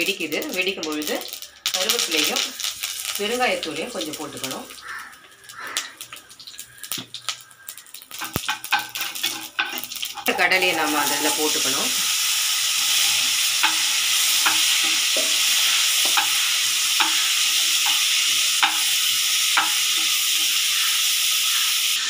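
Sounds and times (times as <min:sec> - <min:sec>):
chickpeas sizzling in oil: 0:00.0 - 0:22.0
spatula clicking against pan: 0:04.8 - 0:10.3, 0:17.8 - 0:20.6.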